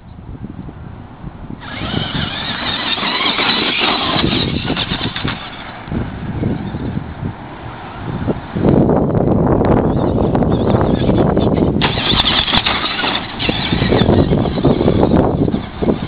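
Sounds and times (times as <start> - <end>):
wind rumble on microphone: 0.0 - 16.0
tyres crunching on gravel: 1.6 - 5.9, 11.8 - 16.0
electric motor whining: 1.6 - 6.0, 10.5 - 16.0.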